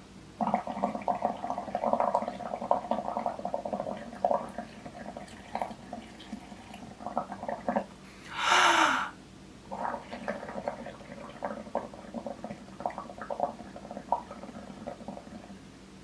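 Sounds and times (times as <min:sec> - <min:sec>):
bubbling gurgle through straw: 0:00.4 - 0:07.9, 0:09.7 - 0:15.7
loud breath: 0:08.1 - 0:09.2.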